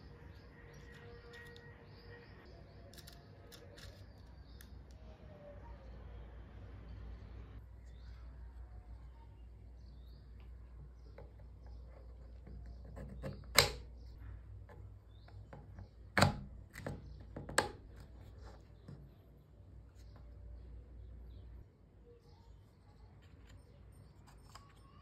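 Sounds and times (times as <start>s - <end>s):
small parts ticking and clicking: 0.8s - 1.8s, 2.8s - 5.0s.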